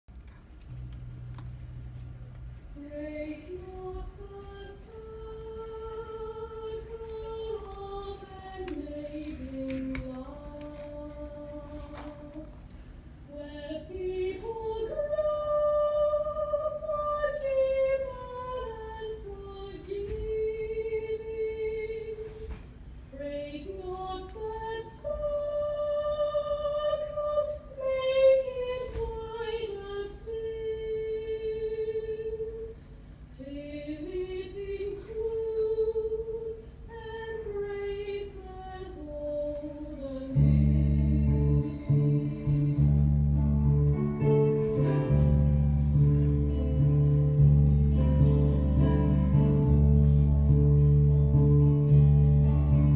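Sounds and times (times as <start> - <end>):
low instrumental music: 0.6 - 12.5, 39.8 - 52.9
woman singing: 2.8 - 12.6, 13.3 - 45.3.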